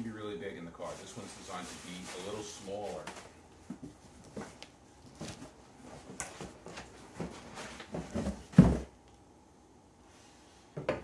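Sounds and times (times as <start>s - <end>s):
cardboard box rustling and knocking: 3.7s - 8.9s.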